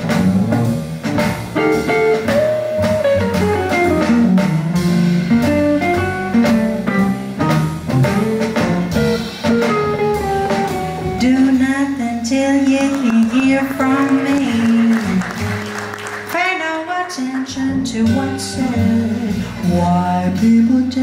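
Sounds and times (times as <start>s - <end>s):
drum kit: 0.0s - 21.0s
upright bass: 0.0s - 21.0s
saxophone: 9.6s - 15.5s.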